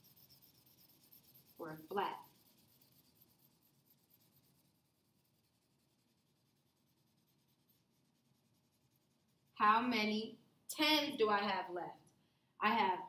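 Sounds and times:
marker scratching on paper: 0:00.0 - 0:10.1.

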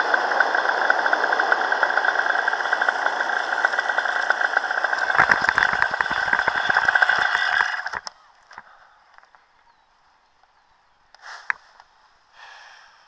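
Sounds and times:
paramotor engine running: 0:00.0 - 0:09.3.

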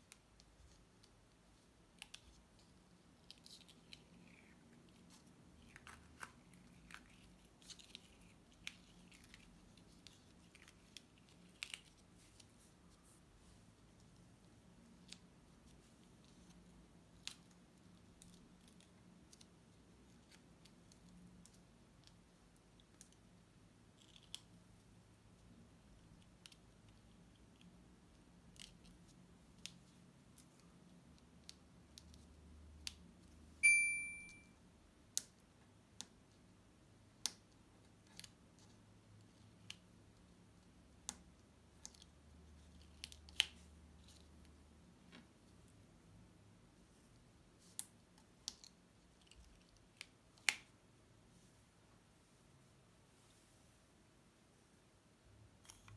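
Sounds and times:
short ringing ding: 0:33.6 - 0:34.5.

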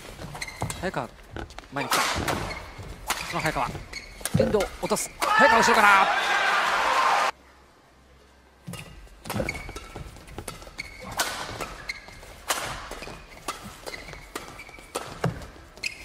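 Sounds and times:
shoes squeaking on court: 0:00.0 - 0:05.2, 0:08.7 - 0:16.0
rackets hitting shuttlecock: 0:08.7 - 0:15.6.

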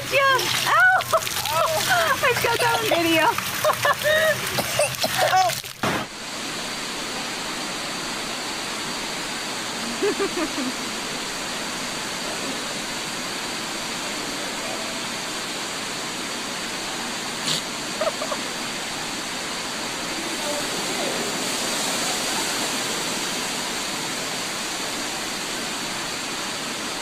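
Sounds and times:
rushing water in pool: 0:00.0 - 0:27.0.

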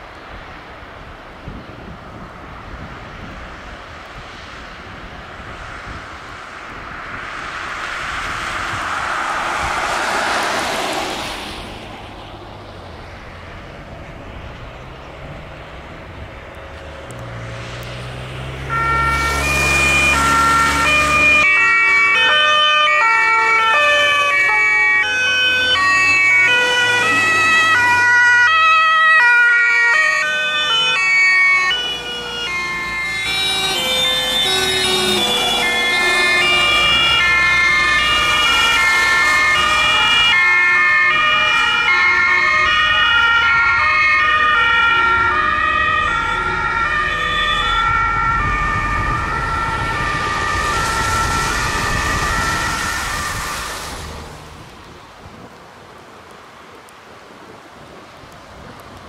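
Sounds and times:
vehicle engines passing: 0:00.1 - 0:55.6
tyre hiss on wet road: 0:03.8 - 0:13.9, 0:17.1 - 0:22.2, 0:32.0 - 0:42.4, 0:50.8 - 0:59.0
two-tone emergency sirens: 0:05.4 - 0:11.6, 0:18.5 - 0:54.6.

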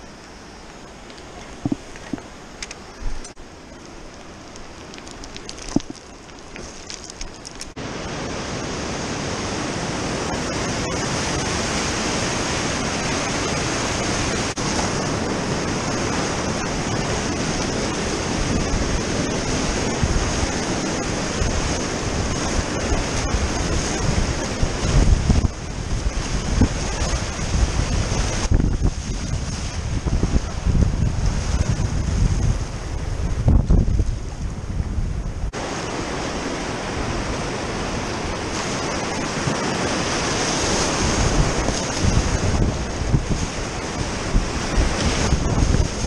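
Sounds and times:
rustling: 0:01.0 - 0:07.8
whitewater rapids rushing: 0:07.8 - 0:28.6, 0:35.6 - 0:46.0.

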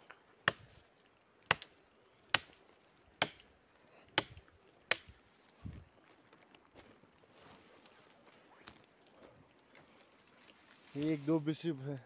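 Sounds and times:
footsteps cracking dry sticks: 0:04.1 - 0:11.4.

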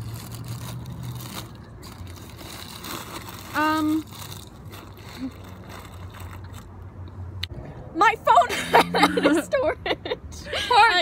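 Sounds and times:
paper wrapper crinkling: 0:00.0 - 0:06.7.

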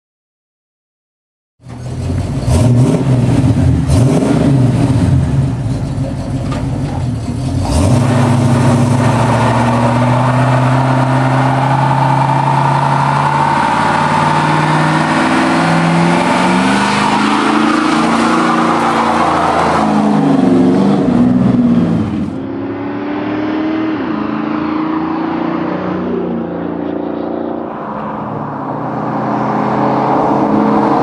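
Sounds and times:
pickup engine revving: 0:01.7 - 0:31.0
tyres spinning in burnout: 0:07.1 - 0:22.1.

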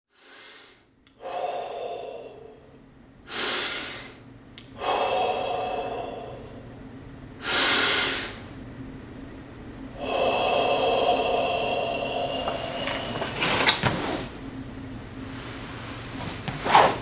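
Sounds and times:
heavy breathing: 0:00.2 - 0:08.6, 0:09.9 - 0:14.3.

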